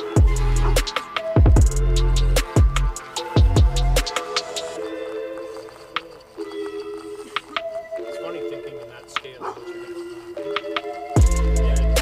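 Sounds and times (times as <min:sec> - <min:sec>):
sharp percussion hits: 0:10.6 - 0:12.0.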